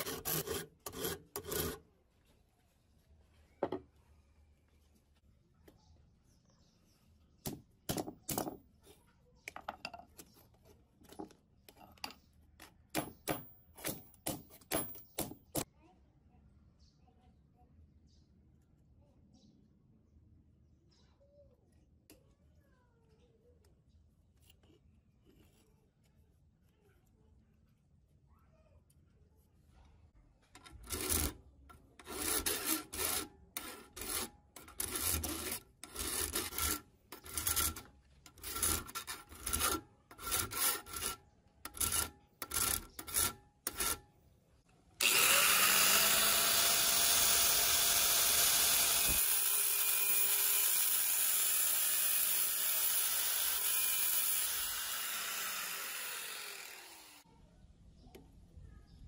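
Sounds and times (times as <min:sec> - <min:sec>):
hand file rasping on steel: 0:00.0 - 0:01.8, 0:30.6 - 0:31.4, 0:32.0 - 0:44.0
power tool motor whirring: 0:45.0 - 0:57.2.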